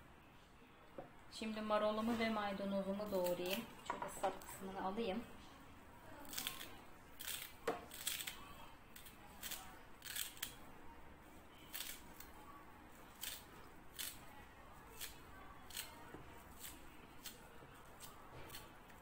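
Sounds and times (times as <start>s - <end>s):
knife snipping parsley stems: 14.9s - 19.0s.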